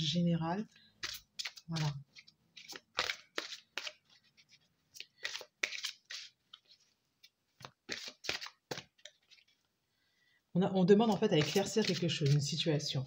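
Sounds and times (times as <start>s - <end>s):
cards being shuffled: 1.0s - 9.6s, 11.0s - 12.6s.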